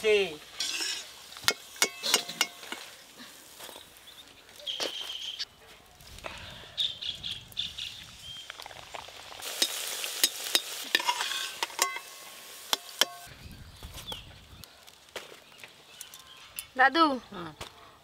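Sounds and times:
metal spoon scraping wok: 0:00.5 - 0:02.9, 0:09.6 - 0:13.3
food deep-frying in oil: 0:07.5 - 0:13.3.

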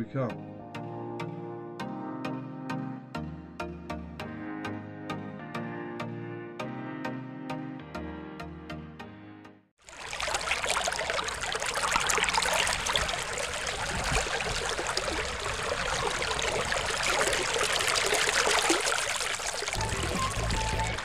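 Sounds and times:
running water: 0:09.8 - 0:21.0.

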